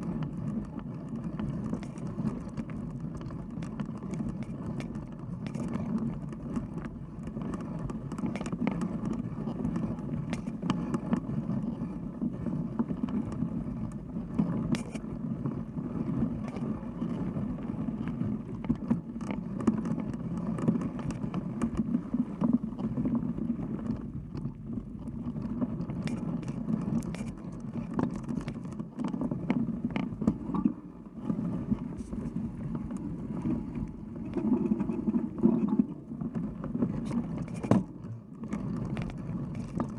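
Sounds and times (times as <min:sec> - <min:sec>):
bike clicks and rattles: 0:00.1 - 0:11.8.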